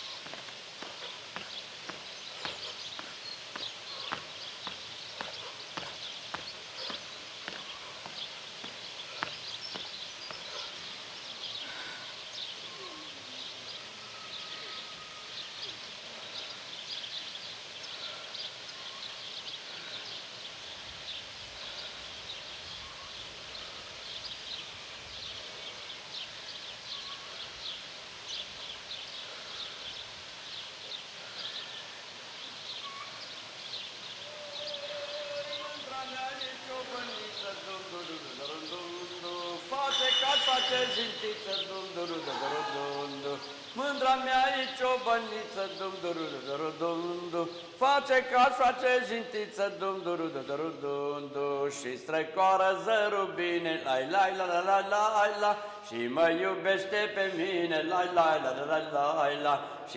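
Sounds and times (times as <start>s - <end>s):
bird calls: 0.0s - 47.8s.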